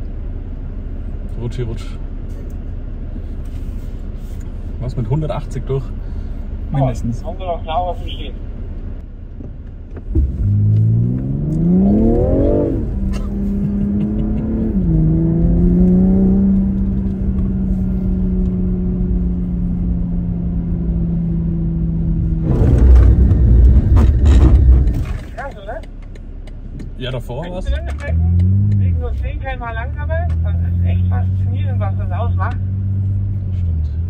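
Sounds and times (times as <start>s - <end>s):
car engine accelerating: 9.0s - 34.0s.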